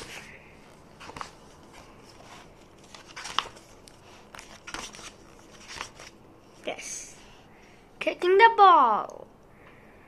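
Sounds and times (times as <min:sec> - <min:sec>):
book pages turning: 0:00.0 - 0:06.2.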